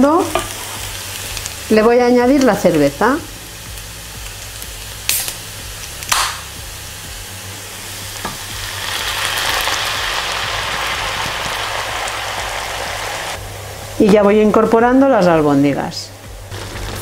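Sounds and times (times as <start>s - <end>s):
beer hissing in hot pan: 0.0s - 14.0s, 16.3s - 17.0s
onions sizzling in oil: 0.0s - 17.0s
beer can popping open: 6.0s - 6.4s.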